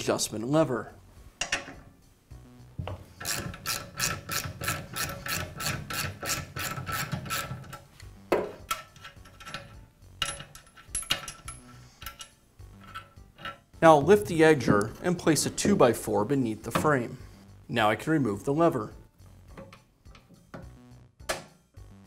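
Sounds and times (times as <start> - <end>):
ratchet wrench clicking: 3.2 - 7.8.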